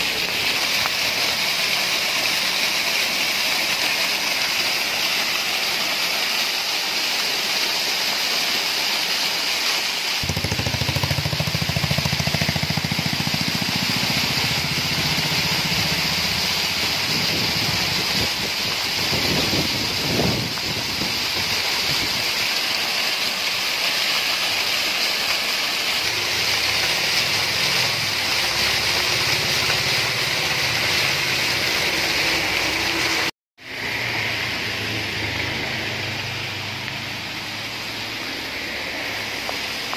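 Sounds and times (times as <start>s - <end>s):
water rushing down rocks: 0.0s - 39.9s
deep water rumble: 10.2s - 22.2s.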